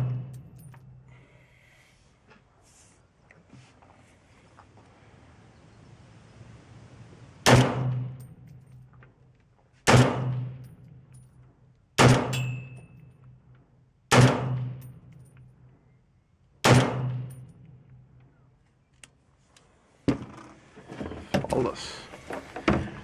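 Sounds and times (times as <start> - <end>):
rifle shots with echo: 0.0 - 0.5, 7.4 - 8.3, 9.8 - 10.7, 12.0 - 12.8, 14.1 - 15.0, 16.6 - 17.5.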